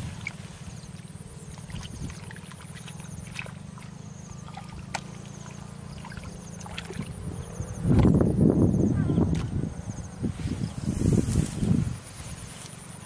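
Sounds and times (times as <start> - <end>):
hands splashing in muddy water: 0.0 - 7.2
low motor-like hum: 0.0 - 13.0.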